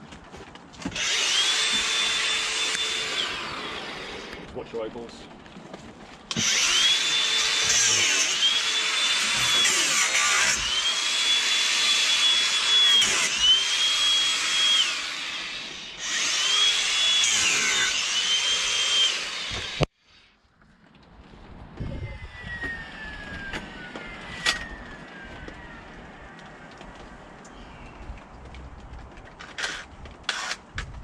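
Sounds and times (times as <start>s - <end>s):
angle grinder cutting wood: 0.9s - 4.5s, 6.3s - 19.9s, 22.3s - 26.5s, 29.4s - 30.6s.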